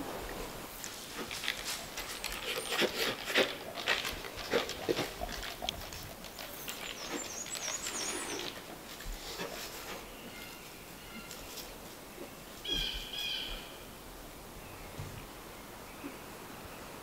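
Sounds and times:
bear making scratchy noises: 0:01.0 - 0:10.1
small birds chirping: 0:04.4 - 0:13.9.

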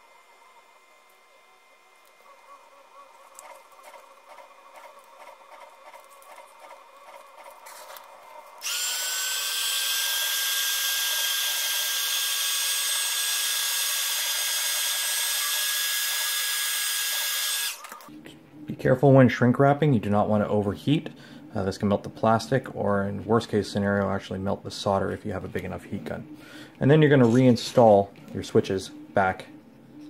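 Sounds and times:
heat gun blowing with high whine: 0:07.6 - 0:18.1
heat gun switch: 0:08.6 - 0:18.0.

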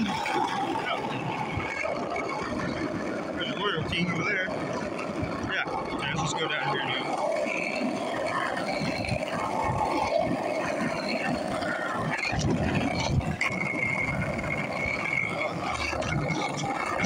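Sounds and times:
thin steady high tone: 0:00.0 - 0:17.0
skateboard wheels rolling on pavement: 0:04.2 - 0:06.0, 0:06.6 - 0:17.0.

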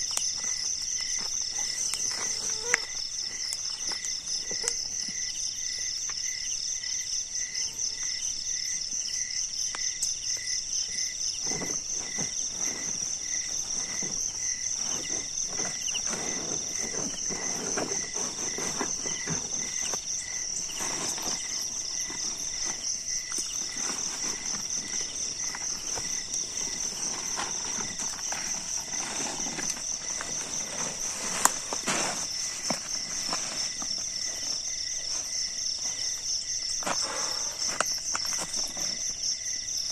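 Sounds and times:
tent fabric rustling and crackling: 0:00.0 - 0:06.1, 0:11.0 - 0:39.5
cricket trill: 0:00.0 - 0:39.9
insect chirping: 0:00.0 - 0:39.9
footsteps on gravel: 0:11.5 - 0:39.1.

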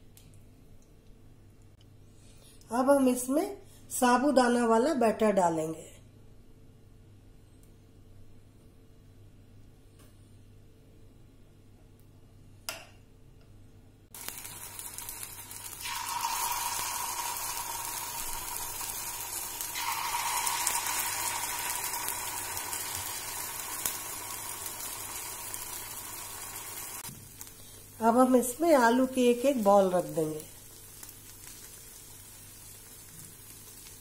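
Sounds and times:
batter sizzling in a hot pan: 0:14.1 - 0:34.0.

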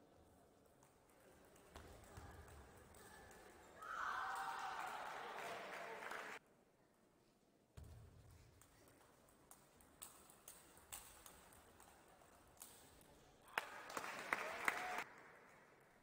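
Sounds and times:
crowd applauding: 0:04.0 - 0:06.4, 0:13.5 - 0:15.7.

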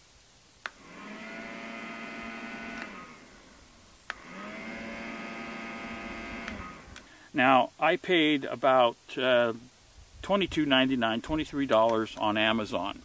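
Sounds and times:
small fan motor humming: 0:00.6 - 0:07.2.

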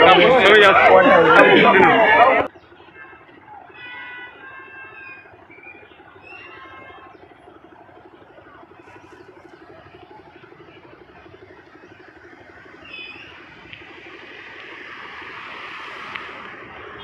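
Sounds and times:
vehicle engine running: 0:00.0 - 0:17.0
short vehicle horn beep: 0:03.7 - 0:04.9.

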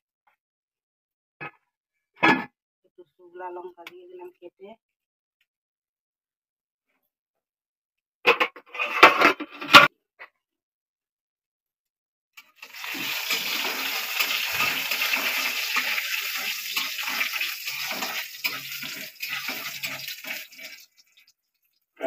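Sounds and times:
spices sizzling in hot oil: 0:12.4 - 0:21.4
spatula scraping: 0:12.6 - 0:21.3.

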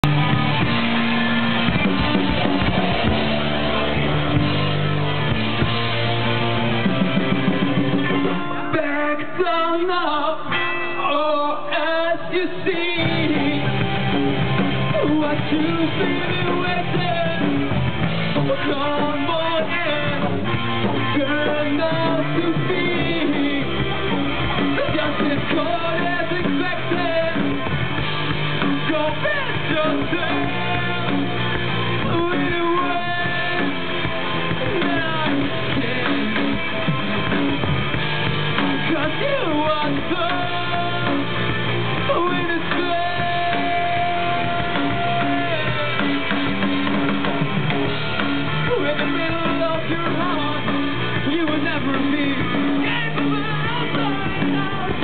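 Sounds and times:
bass guitar: 0:00.0 - 0:55.0
drum kit: 0:00.0 - 0:55.0
electric guitar: 0:00.0 - 0:55.0
person singing: 0:07.6 - 0:17.7, 0:18.4 - 0:27.8, 0:28.6 - 0:37.4, 0:38.6 - 0:47.4, 0:48.6 - 0:55.0.

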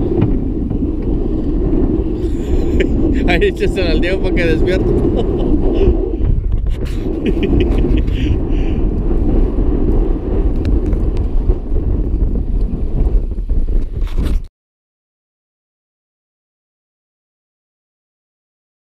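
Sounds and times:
sea noise: 0:00.0 - 0:13.6
wind: 0:00.0 - 0:14.5.

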